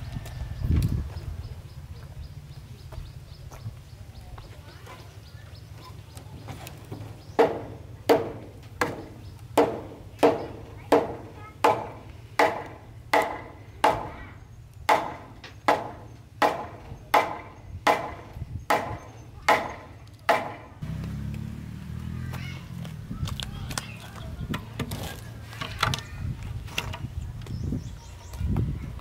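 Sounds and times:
tool striking wood: 7.4 - 14.2, 14.9 - 20.8.

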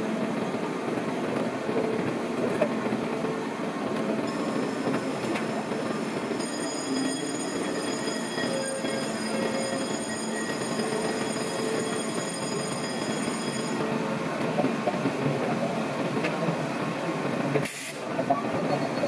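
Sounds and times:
wheel squeal: 6.4 - 13.7, 18.3 - 19.0.

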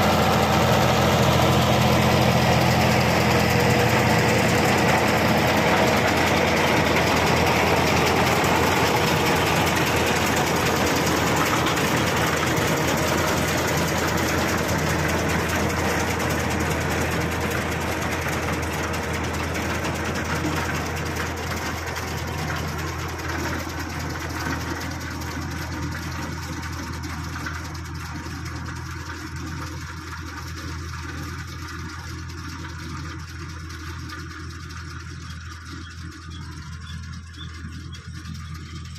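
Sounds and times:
tractor engine running: 0.0 - 38.9.

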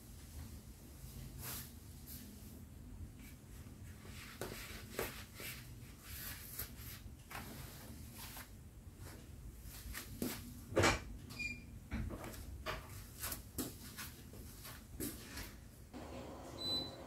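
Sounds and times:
slippers scuffing on tile floor: 3.2 - 10.5, 12.2 - 15.6.

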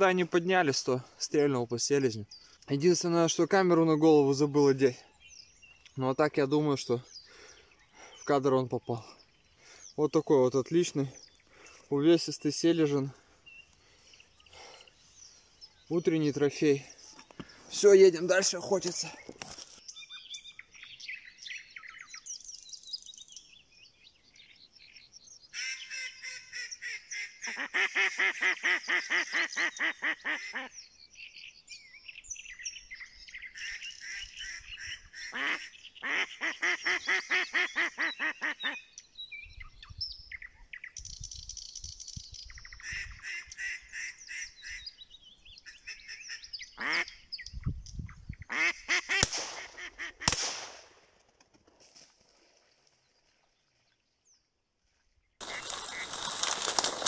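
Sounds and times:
duck quacking rapidly: 25.6 - 30.7, 33.6 - 38.8, 46.8 - 47.2, 48.5 - 50.4.

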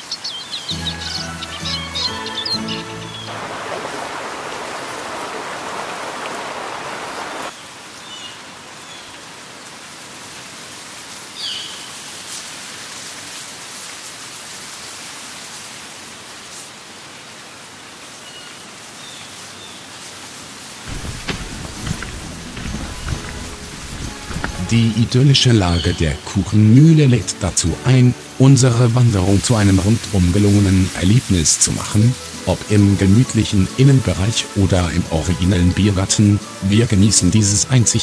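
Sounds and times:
birds chirping: 0.0 - 7.5, 20.9 - 27.4
water rushing: 0.8 - 7.6, 20.8 - 38.0.

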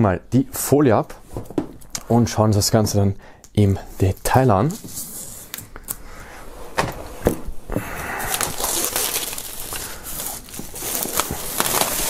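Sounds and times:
plastic shrink wrap crinkling: 8.0 - 12.0.

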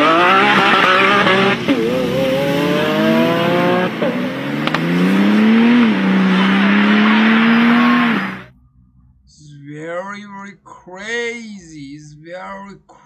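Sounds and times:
car engine accelerating through gears: 0.0 - 9.4.

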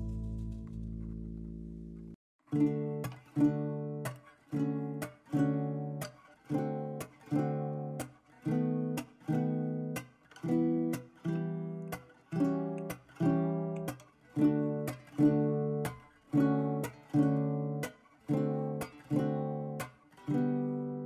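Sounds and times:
strummed acoustic guitar: 2.5 - 21.0.

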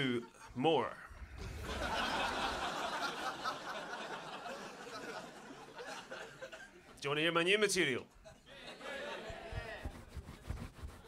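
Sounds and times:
audience laughing: 0.2 - 7.0, 8.2 - 9.8.

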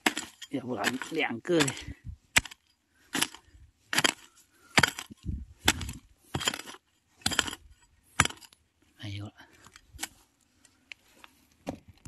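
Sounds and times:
hoe chopping into soil: 0.0 - 8.6.

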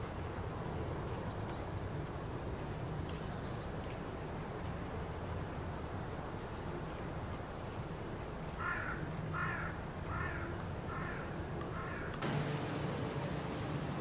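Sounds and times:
crow cawing: 8.6 - 12.1.

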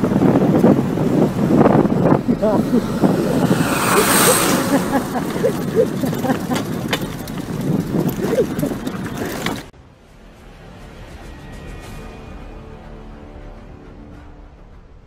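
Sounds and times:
road and wind noise: 0.0 - 15.0
people chattering: 2.1 - 9.6.

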